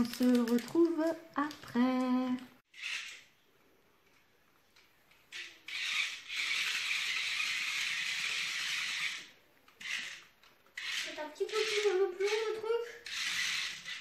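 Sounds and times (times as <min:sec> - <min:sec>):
toy car motor whirring: 0:02.7 - 0:03.3, 0:05.3 - 0:14.0.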